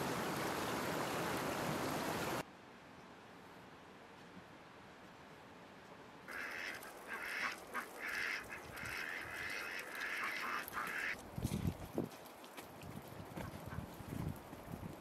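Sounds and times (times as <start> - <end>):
fowl calling harshly: 6.3 - 11.2
wind rumble on microphone: 11.2 - 12.2, 12.8 - 15.0.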